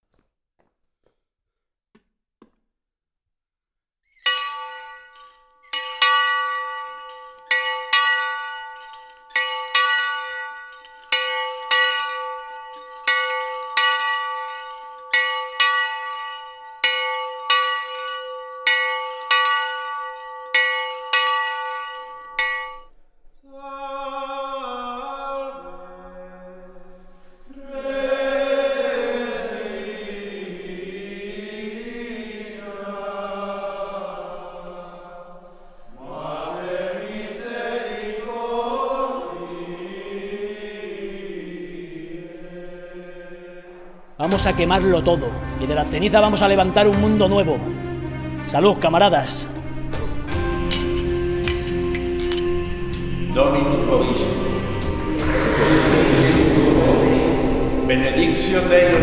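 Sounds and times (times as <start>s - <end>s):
small bell ringing: 4.2s - 22.9s, 50.7s - 52.7s
men chanting: 23.5s - 26.8s, 27.5s - 35.4s, 36.0s - 47.8s, 52.5s - 59.0s
choir chanting: 23.5s - 51.6s, 52.4s - 59.0s.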